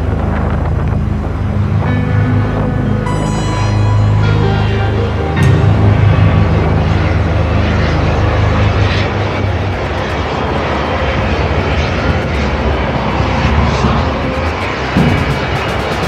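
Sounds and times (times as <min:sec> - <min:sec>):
helicopter engine noise: 0:00.0 - 0:16.0
helicopter rotor thrum: 0:05.4 - 0:16.0.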